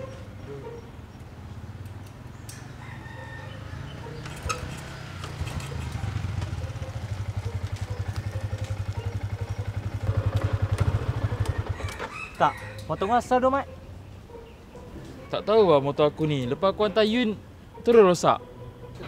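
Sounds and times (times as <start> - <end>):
motorcycle engine running: 3.8 - 12.0.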